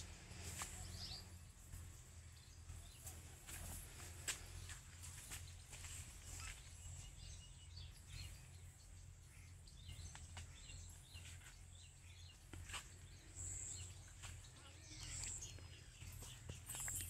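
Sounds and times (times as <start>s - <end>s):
faint bird chirps: 4.5s - 17.0s.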